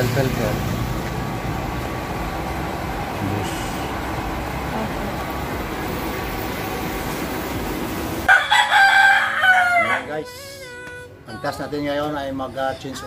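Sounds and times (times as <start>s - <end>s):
background hum and hiss: 0.1s - 8.3s
rooster crowing: 8.3s - 10.2s.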